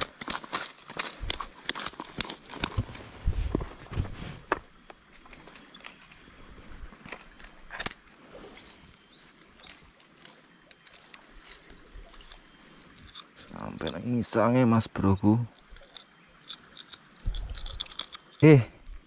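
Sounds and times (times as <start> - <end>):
thumps and rustles: 0.0 - 5.6, 17.2 - 18.1
high-pitched insect drone: 5.2 - 19.0.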